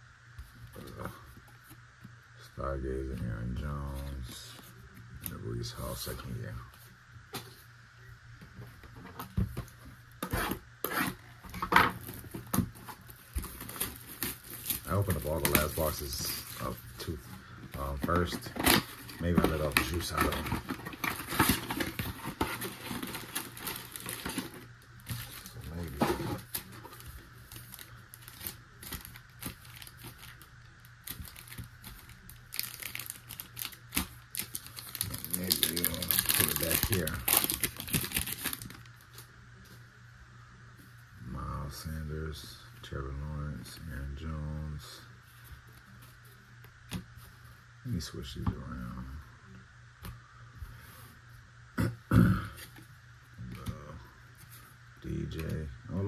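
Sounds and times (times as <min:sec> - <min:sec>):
wrappers crinkling and crackling: 0:11.9 - 0:39.2.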